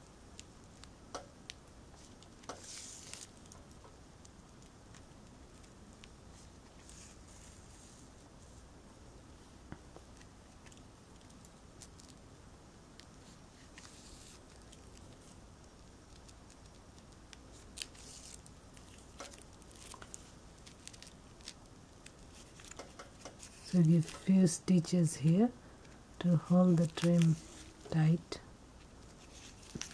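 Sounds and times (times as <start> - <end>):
low room hum: 0.0 - 29.9
needle and thread through fabric: 2.0 - 3.8, 6.3 - 8.7, 13.1 - 25.4, 26.2 - 28.4, 29.0 - 29.9.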